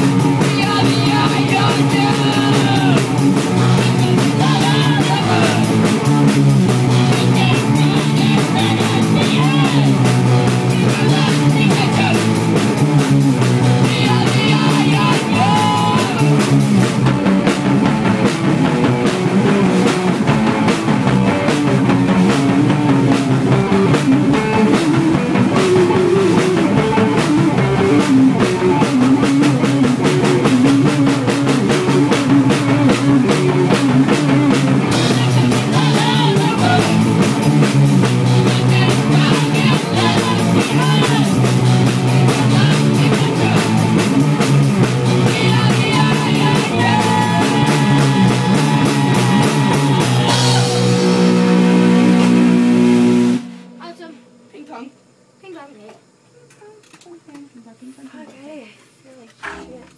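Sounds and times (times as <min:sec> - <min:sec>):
drum kit playing: 0:00.0 - 0:56.2
distorted electric guitars: 0:00.0 - 0:56.3
shouted vocals: 0:00.3 - 0:06.0, 0:07.0 - 0:12.5, 0:13.8 - 0:16.6, 0:34.4 - 0:37.4, 0:38.4 - 0:44.1, 0:45.1 - 0:51.2.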